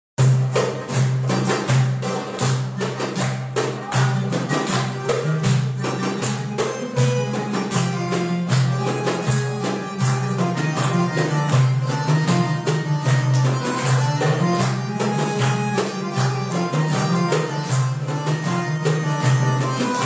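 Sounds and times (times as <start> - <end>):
accordion sustained notes: 0.2 - 20.0
hand drum beat: 0.2 - 20.0
oud playing: 0.2 - 20.0.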